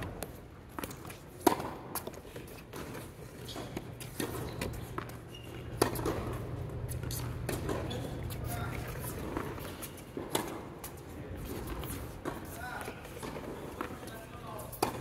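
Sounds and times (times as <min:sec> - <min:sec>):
rackets striking tennis ball: 0:00.0 - 0:15.0.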